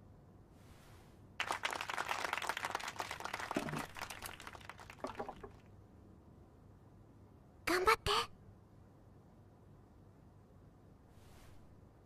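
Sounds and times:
audience clapping: 0:01.4 - 0:05.6.

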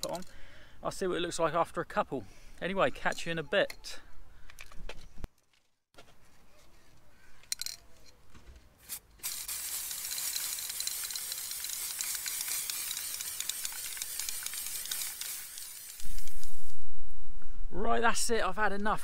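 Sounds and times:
aerosol spray can hissing: 0:08.8 - 0:16.8.

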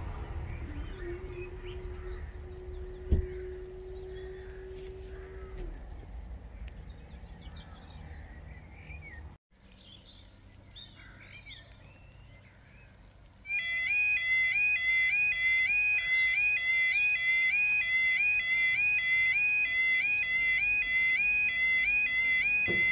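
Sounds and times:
birds singing: 0:00.3 - 0:05.8, 0:06.4 - 0:14.0, 0:15.1 - 0:22.9
two-tone level crossing alarm: 0:13.5 - 0:22.9.

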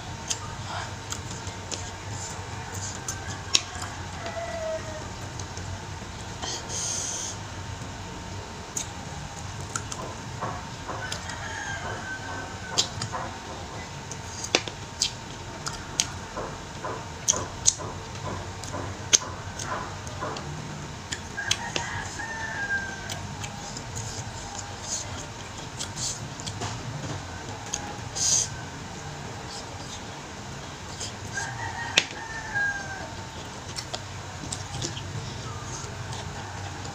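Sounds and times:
person chewing and sucking bones: 0:09.6 - 0:13.2.

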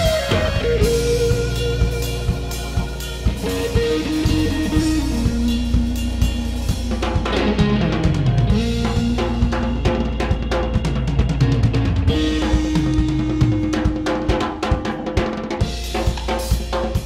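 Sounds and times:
music with drum beat: 0:00.0 - 0:17.0.

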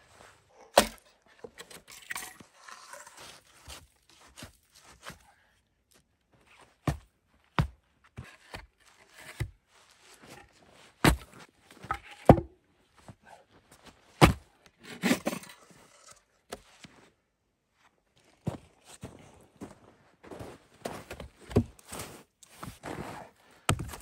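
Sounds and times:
saw scraping on a log: 0:01.4 - 0:03.7
footsteps in snow: 0:18.4 - 0:24.0.

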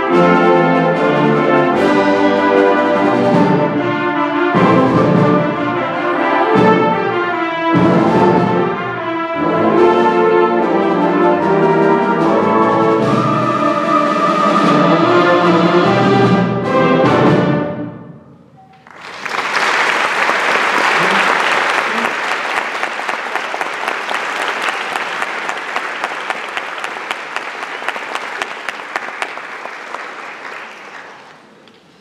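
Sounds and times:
concert band playing chords: 0:00.0 - 0:17.4
audience applause: 0:18.7 - 0:31.9.

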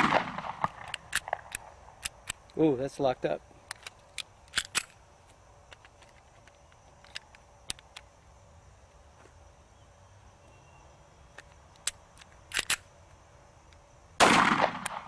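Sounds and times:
pistol slide clicks and clacks: 0:00.6 - 0:02.6, 0:03.7 - 0:04.9, 0:11.4 - 0:12.9.

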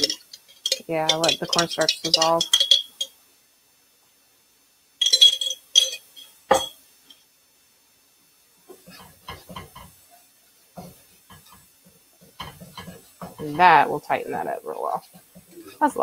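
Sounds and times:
whisk scraping and clicking: 0:00.0 - 0:03.1
glass jar knocking on skillet: 0:00.0 - 0:03.2, 0:05.0 - 0:06.8, 0:08.9 - 0:10.0, 0:12.3 - 0:13.7.

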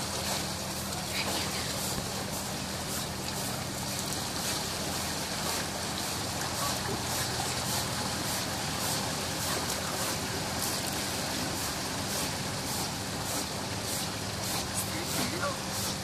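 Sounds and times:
stream trickling through stone channel: 0:00.0 - 0:16.0.

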